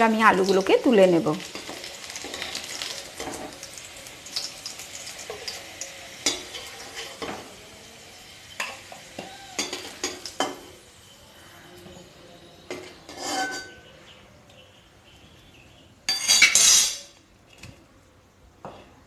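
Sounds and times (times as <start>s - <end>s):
hot oil sizzling: 0.0s - 11.5s
metal spoon scraping a pan: 1.4s - 3.6s, 5.2s - 7.4s, 12.7s - 14.0s, 16.1s - 17.2s
spoon clinking against metal: 6.2s - 7.4s, 8.6s - 10.7s, 12.7s - 13.9s.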